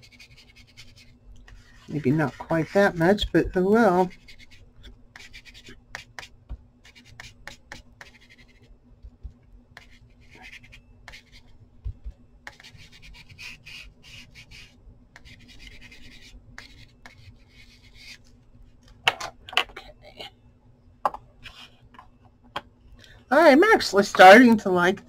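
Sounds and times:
ink tool rubbing on paper: 0:00.0 - 0:03.2, 0:03.9 - 0:08.7, 0:09.8 - 0:11.6, 0:12.5 - 0:18.2.

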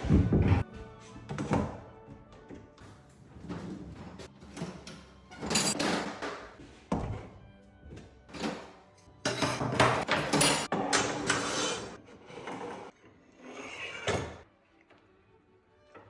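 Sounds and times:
metal parts clattering and scraping: 0:05.3 - 0:06.2.

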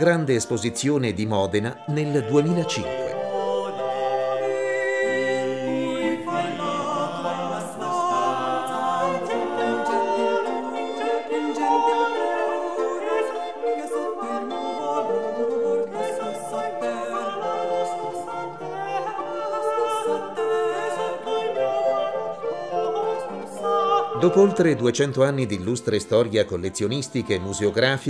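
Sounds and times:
unaccompanied choir singing: 0:01.8 - 0:25.7.

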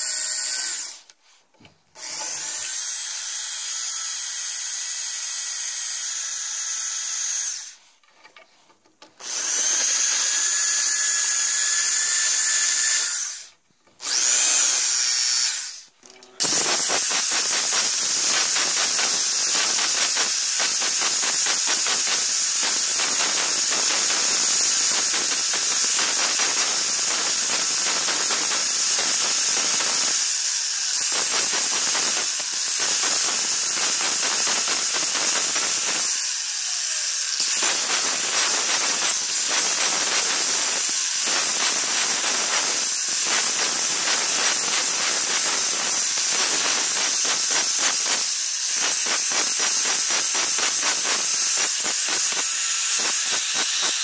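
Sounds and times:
angle grinder grinding bone: 0:09.2 - 0:54.0.

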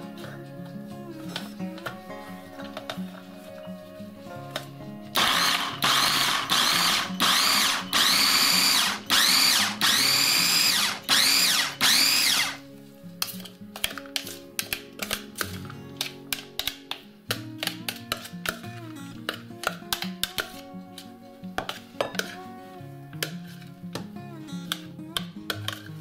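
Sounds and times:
food chopper motor whine: 0:05.2 - 0:12.6.

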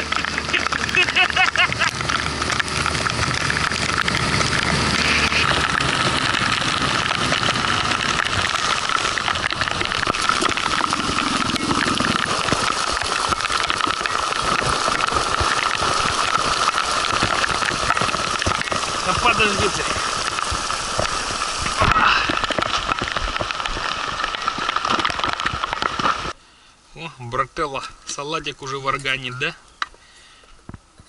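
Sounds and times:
outboard motor running: 0:00.0 - 0:21.8
water splashing along hull: 0:00.0 - 0:21.8
rain hissing: 0:00.0 - 0:28.8.

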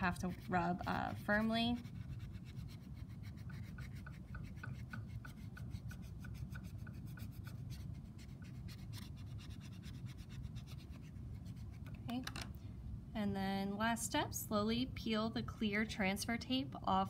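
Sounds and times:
squeegee rubbing on tape: 0:00.0 - 0:12.0.

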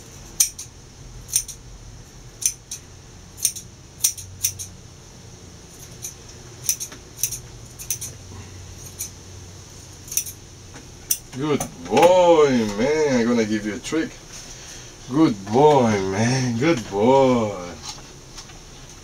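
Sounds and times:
steady background hum: 0:00.0 - 0:19.0
scissors snipping hair: 0:00.4 - 0:00.7, 0:01.3 - 0:01.6, 0:02.4 - 0:02.8, 0:03.4 - 0:04.7, 0:05.8 - 0:08.2, 0:08.8 - 0:09.2, 0:10.1 - 0:10.4.

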